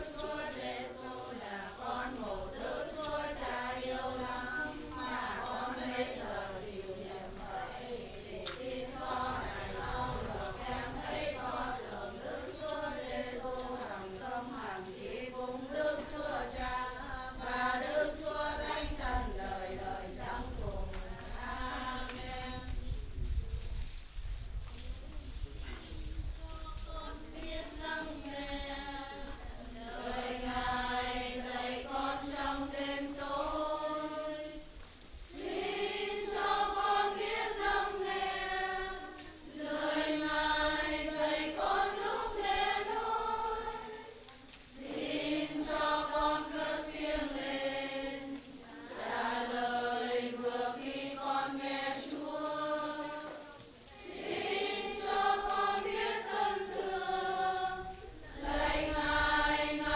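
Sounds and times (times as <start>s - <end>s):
choir singing a hymn: 0.0s - 23.0s, 26.6s - 59.9s.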